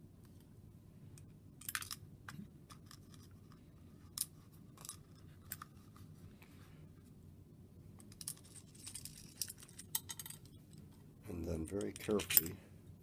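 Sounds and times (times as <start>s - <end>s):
light clicks of metal parts: 8.0s - 12.6s.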